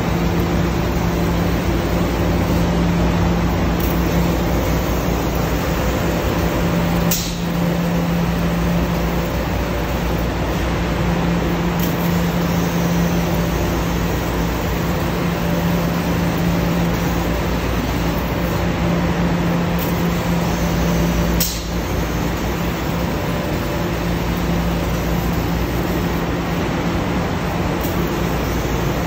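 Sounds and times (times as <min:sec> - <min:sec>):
laser cutter hissing: 0:00.0 - 0:29.0
low machine hum: 0:00.0 - 0:29.0.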